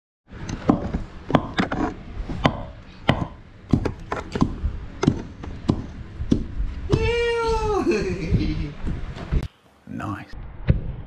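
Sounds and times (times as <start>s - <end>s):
pestle pounding in a mortar: 2.4s - 7.1s.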